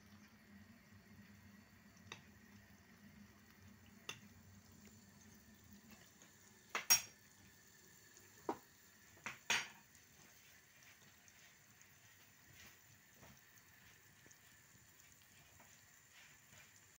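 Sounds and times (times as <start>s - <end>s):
metal spoon clinking on saucepan: 6.7s - 7.2s.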